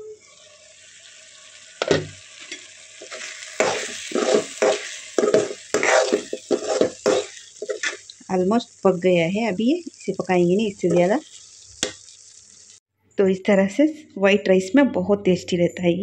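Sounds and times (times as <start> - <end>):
gravy sizzling in a pan: 0.0 - 12.8
metal spoon scraping a pan: 1.8 - 8.2.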